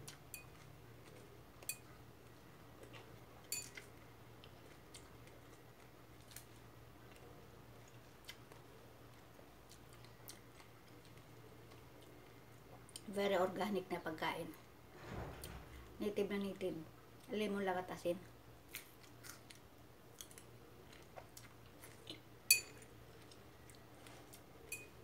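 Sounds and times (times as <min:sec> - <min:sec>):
faint chewing: 0:00.0 - 0:13.2, 0:18.2 - 0:25.0
metal fork clicking on ceramic bowl: 0:22.5 - 0:22.8.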